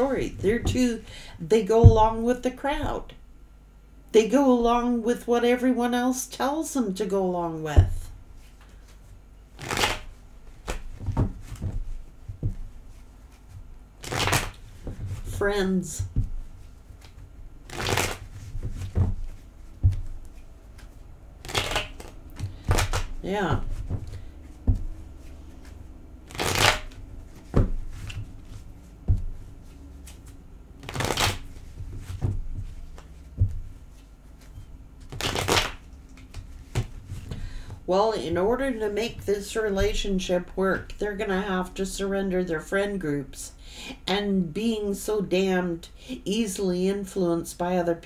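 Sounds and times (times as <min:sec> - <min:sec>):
cards shuffling: 0:09.6 - 0:15.4, 0:16.2 - 0:37.4
cards clicking and knocking: 0:17.0 - 0:25.0, 0:25.6 - 0:33.7, 0:35.0 - 0:37.4.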